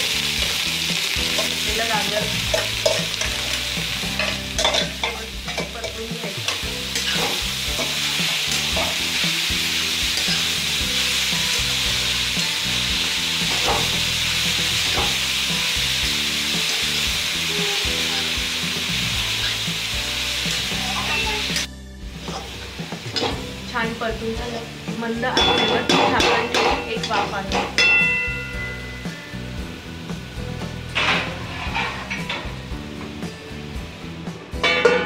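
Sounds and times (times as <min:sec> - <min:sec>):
carrots sizzling in hot fat: 0:00.0 - 0:34.6
spatula scraping pan: 0:01.4 - 0:11.5, 0:30.9 - 0:32.6.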